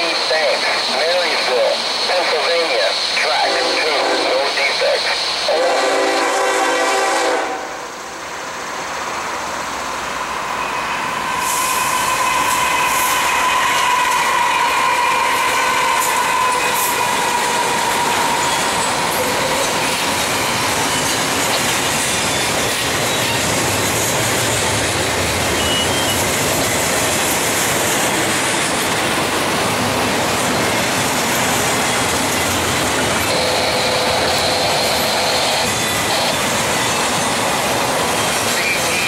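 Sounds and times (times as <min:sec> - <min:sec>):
train wheels rumbling on rails: 0:00.0 - 0:39.0
locomotive braking whine: 0:09.7 - 0:23.6, 0:25.5 - 0:26.3, 0:31.7 - 0:39.0
high wheel squeal: 0:10.4 - 0:23.5, 0:25.5 - 0:26.3, 0:33.2 - 0:39.0.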